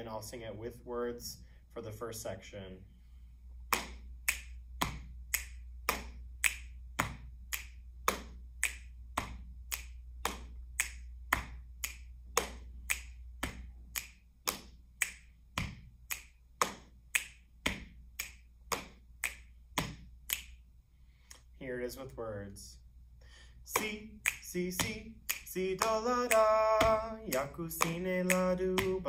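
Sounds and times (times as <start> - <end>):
finger snaps: 3.6 - 20.6, 21.2 - 21.5, 23.7 - 29.0.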